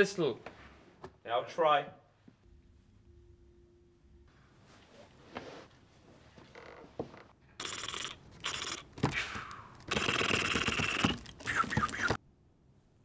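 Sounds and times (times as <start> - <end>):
plastic crinkling: 11.0 - 12.2.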